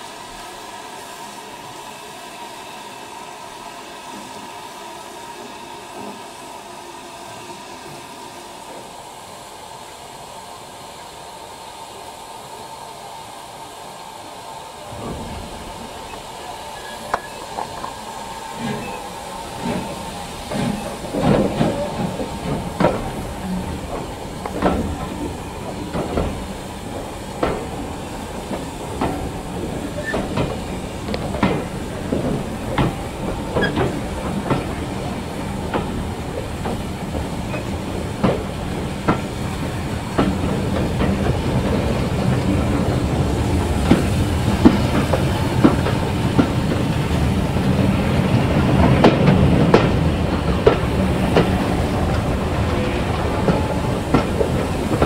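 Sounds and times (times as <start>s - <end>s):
train rumble: 0.0s - 55.0s
train wheels clicking over rail joints: 14.8s - 55.0s.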